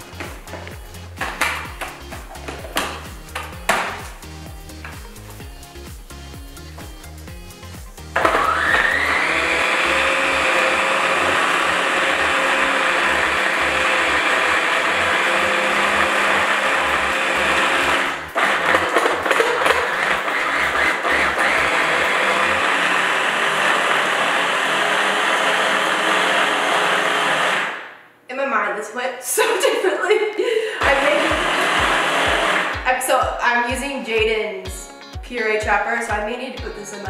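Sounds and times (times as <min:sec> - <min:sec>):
food processor motor grinding: 0:08.0 - 0:27.9, 0:30.8 - 0:32.8.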